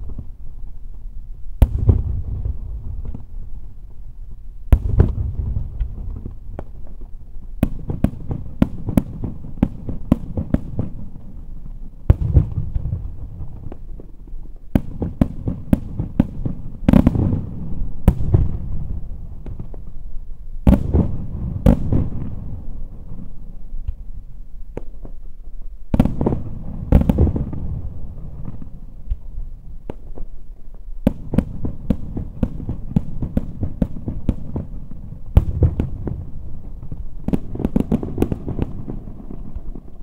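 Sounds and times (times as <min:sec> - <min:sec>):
low rumbling echo: 0:00.0 - 0:07.6
fireworks bangs: 0:01.6 - 0:04.1, 0:04.7 - 0:40.0.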